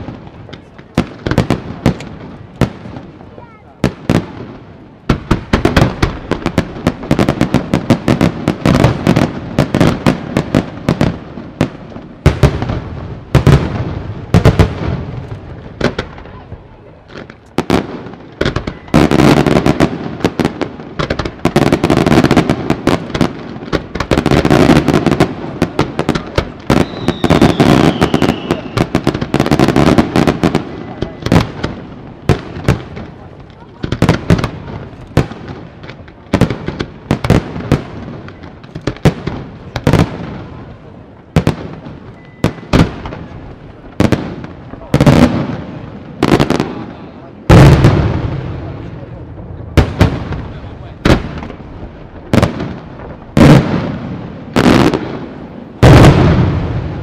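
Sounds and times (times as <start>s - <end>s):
firework crackling: 0.0s - 57.0s
falling firework whistle: 26.7s - 28.9s, 42.1s - 43.4s.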